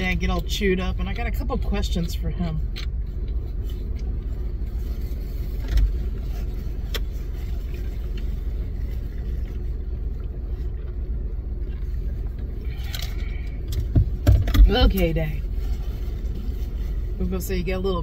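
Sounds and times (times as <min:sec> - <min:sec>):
car engine idling: 0:00.0 - 0:18.0.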